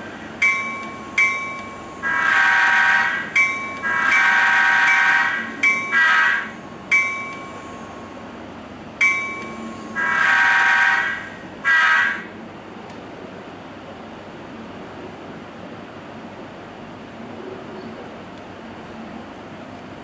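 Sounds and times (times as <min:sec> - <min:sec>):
sharp ringing strikes: 0:00.4 - 0:02.1, 0:03.2 - 0:08.1, 0:09.0 - 0:10.0
model train diesel horn: 0:02.0 - 0:06.6, 0:09.6 - 0:12.4.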